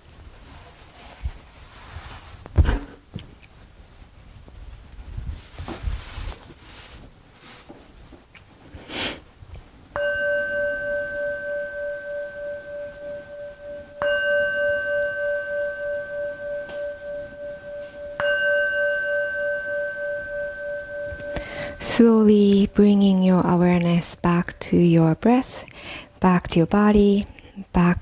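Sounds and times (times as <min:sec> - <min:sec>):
singing bowl ringing: 0:09.9 - 0:23.9.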